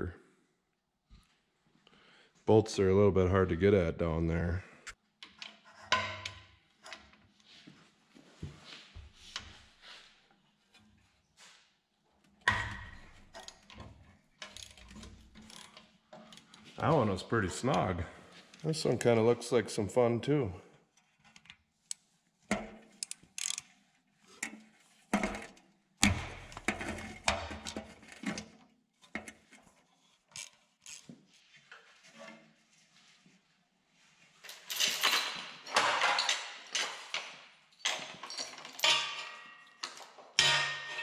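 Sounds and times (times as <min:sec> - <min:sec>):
ratchet wrench clicking: 0:23.0 - 0:23.6
metal clanking and chain rattle: 0:34.5 - 0:41.0.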